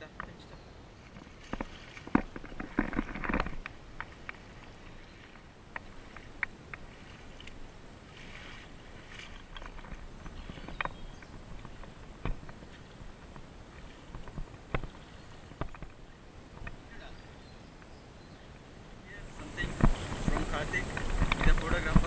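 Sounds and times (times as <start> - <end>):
water splashing: 0.0 - 22.0
shoes knocking on stones: 1.5 - 4.4, 9.2 - 13.5, 19.6 - 22.0.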